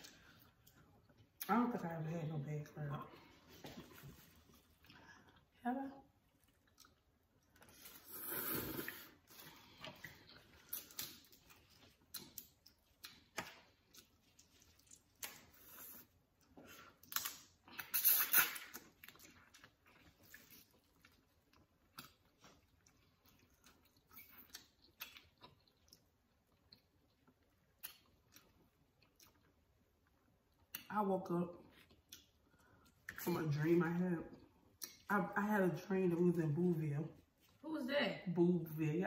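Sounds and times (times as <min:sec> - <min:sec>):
people chewing: 0:06.2 - 0:30.8.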